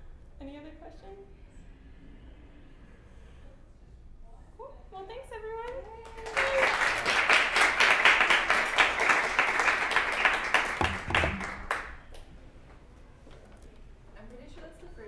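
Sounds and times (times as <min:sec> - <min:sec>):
audience applauding: 0:06.0 - 0:12.2.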